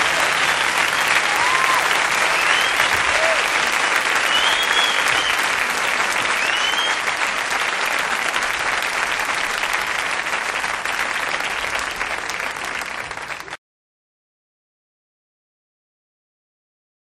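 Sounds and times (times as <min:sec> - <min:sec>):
crowd applauding and cheering: 0:00.0 - 0:13.6
short rising whistle: 0:04.2 - 0:05.5, 0:06.4 - 0:07.0.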